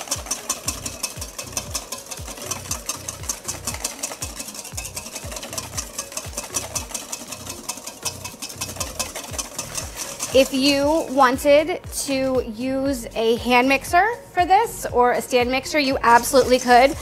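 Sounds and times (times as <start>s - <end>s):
wire whisk clicking against metal bowl: 0.0s - 11.1s.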